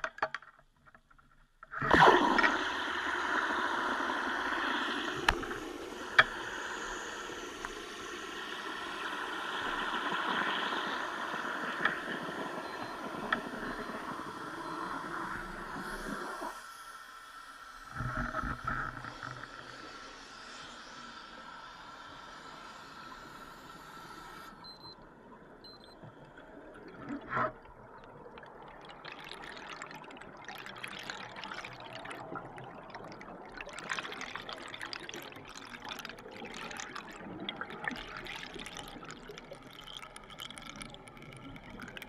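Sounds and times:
rushing water underwater: 1.6s - 42.0s.

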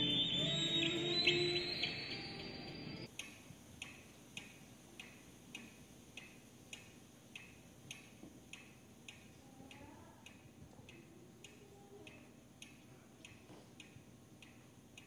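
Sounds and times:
faint clock ticking: 3.1s - 15.0s.

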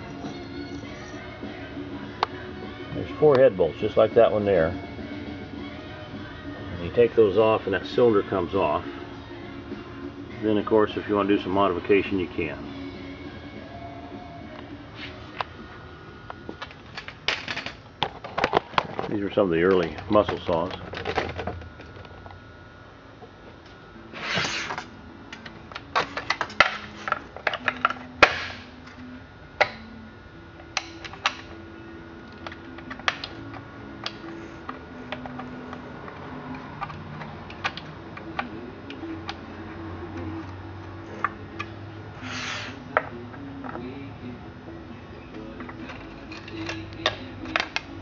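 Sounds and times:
faint background music: 0.0s - 48.0s
metal parts clicking and tapping: 25.3s - 28.5s, 35.1s - 39.4s.

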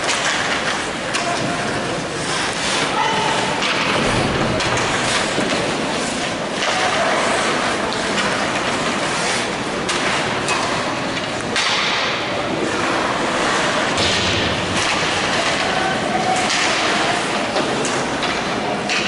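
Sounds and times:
knocks of sticks and puck: 0.0s - 19.0s
skate blades scraping on ice: 1.6s - 10.8s.

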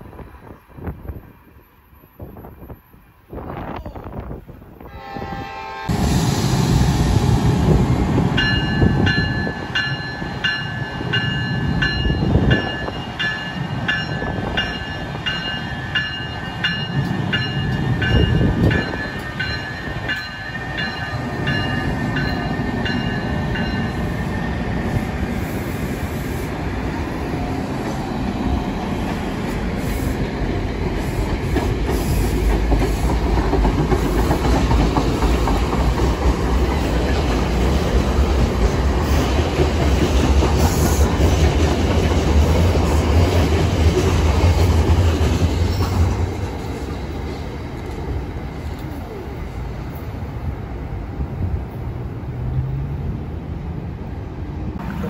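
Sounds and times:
train wheels rumbling on rails: 2.2s - 55.0s
train bell ringing: 8.4s - 24.4s.

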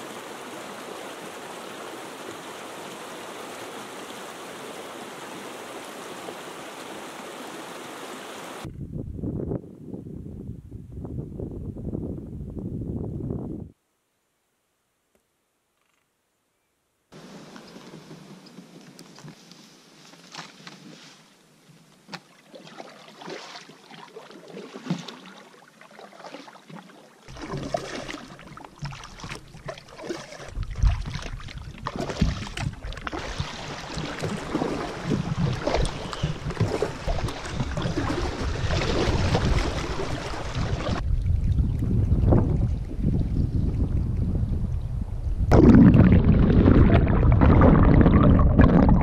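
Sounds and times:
wind rumbling on microphone: 8.6s - 13.8s, 30.4s - 49.0s
paddle strokes: 17.2s - 41.0s
water lapping along hull: 22.1s - 44.0s.

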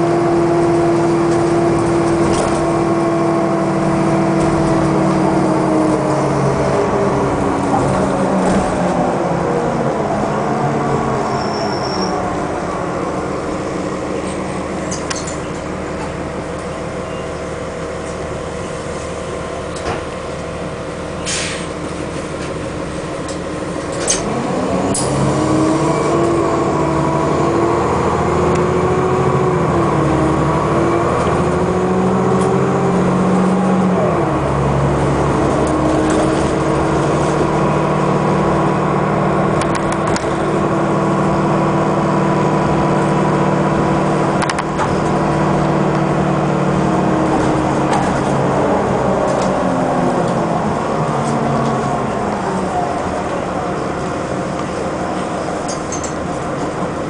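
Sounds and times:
bus diesel engine: 0.0s - 57.0s
brief air hiss: 21.2s - 21.8s.

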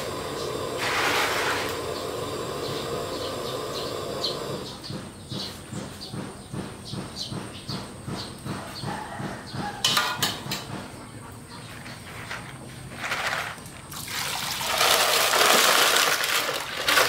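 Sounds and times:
hiss of heating wok: 0.0s - 4.9s.

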